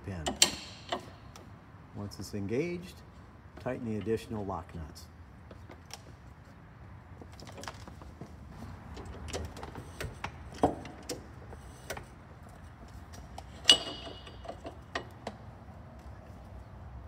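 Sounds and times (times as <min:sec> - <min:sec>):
metal collar clicking and knocking: 0:00.3 - 0:01.4, 0:13.3 - 0:15.4.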